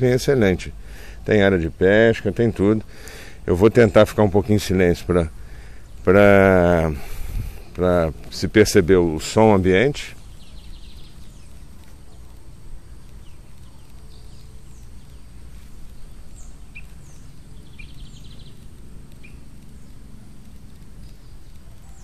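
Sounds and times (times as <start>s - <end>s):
birds chirping: 0.0s - 22.0s
low background rumble: 0.0s - 22.0s
bird trills: 16.0s - 18.6s, 19.2s - 19.9s.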